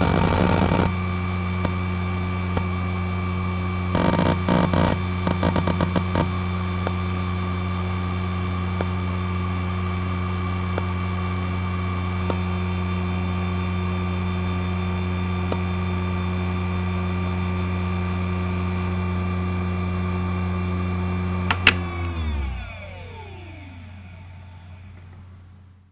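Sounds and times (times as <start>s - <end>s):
hard drive spindle hum: 0.0s - 2.8s, 3.9s - 17.4s
hard drive spin-down whine: 0.0s - 3.1s, 3.9s - 17.8s, 21.6s - 25.2s.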